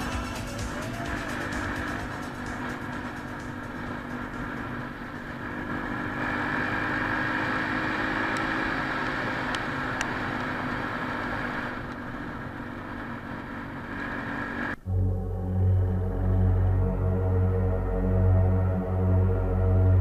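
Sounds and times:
quad bike engine running: 0:00.0 - 0:20.0.

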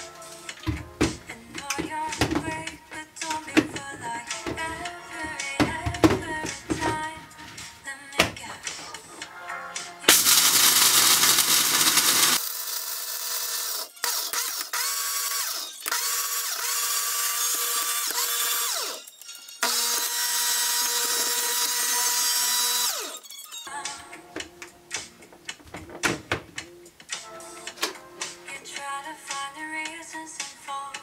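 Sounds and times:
blender motor running: 0:10.1 - 0:23.2.

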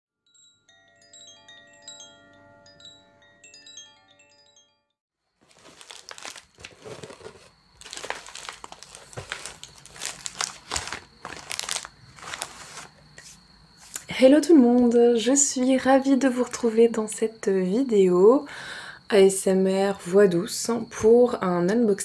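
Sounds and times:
chime melody: 0:00.2 - 0:05.0
crinkling and crumpling: 0:05.4 - 0:13.4.

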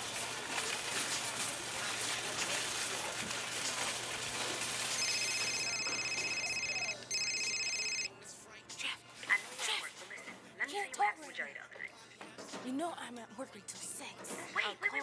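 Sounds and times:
mobile phone ringtone trill: 0:05.0 - 0:08.1.

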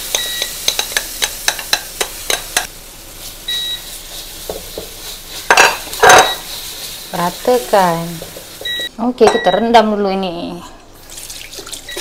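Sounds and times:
batter sizzling in oil: 0:00.0 - 0:08.9
utensil clicking against pan: 0:00.1 - 0:02.7
utensil scraping pan: 0:04.0 - 0:08.8.

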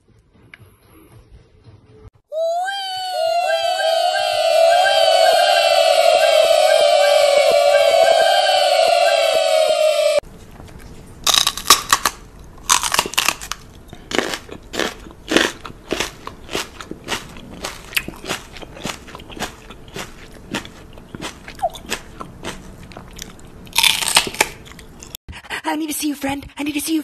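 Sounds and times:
voices: 0:02.4 - 0:10.2
loud music: 0:02.9 - 0:10.2
mouth crunching smacks and clicks: 0:11.3 - 0:25.2.

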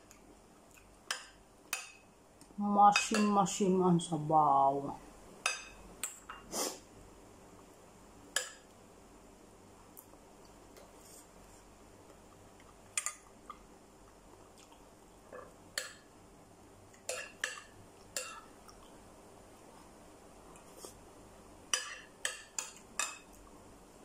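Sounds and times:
metal spoon clinking dishes: 0:05.4 - 0:06.4, 0:17.1 - 0:18.5, 0:21.7 - 0:23.3.

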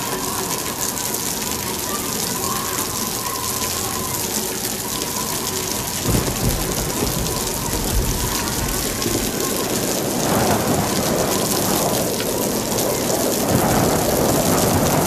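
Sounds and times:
heavy rain pouring: 0:00.0 - 0:15.0
low rumble of thunder: 0:05.9 - 0:15.0.

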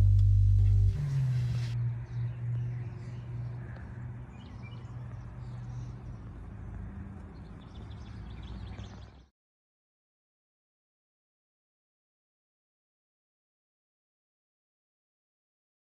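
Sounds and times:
low steady hum: 0:00.0 - 0:02.8.

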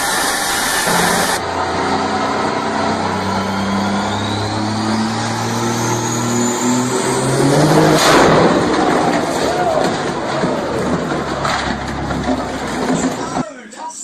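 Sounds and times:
loud hiss: 0:00.0 - 0:01.4
thin high whine: 0:00.0 - 0:01.4
car engine running: 0:00.0 - 0:13.4.

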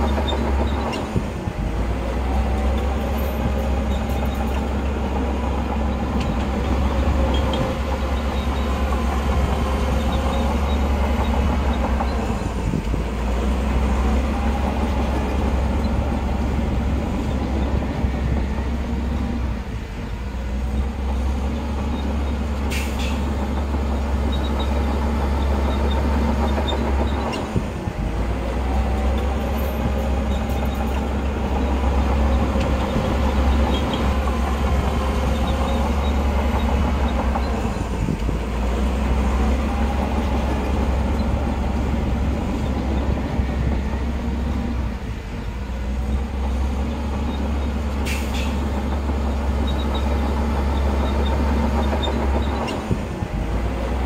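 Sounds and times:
diesel machinery engine droning: 0:00.0 - 0:54.0
rattling and clanking: 0:02.5 - 0:13.0, 0:21.0 - 0:44.8.

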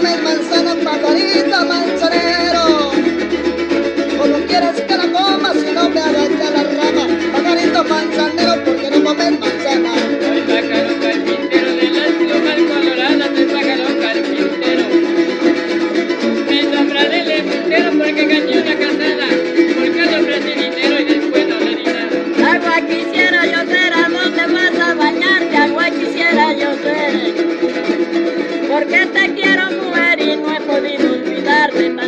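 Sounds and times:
harp: 0:00.0 - 0:23.2
strummed small guitars: 0:00.0 - 0:32.0.

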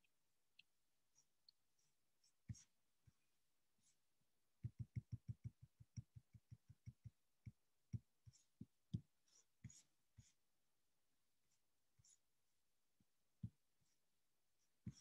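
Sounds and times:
soft computer keyboard typing: 0:04.6 - 0:07.6.

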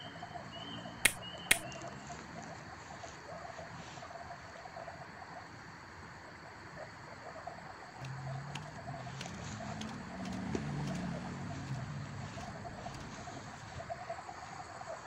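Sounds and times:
chirping and croaking: 0:00.0 - 0:15.0
paper clicks and taps on wood: 0:01.1 - 0:01.6.

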